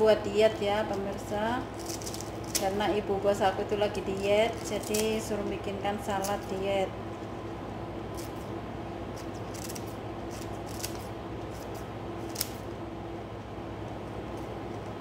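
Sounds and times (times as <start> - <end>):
scissors snipping lettuce: 1.8 - 2.9, 4.1 - 5.2, 6.2 - 6.6, 8.1 - 8.5, 9.1 - 12.6.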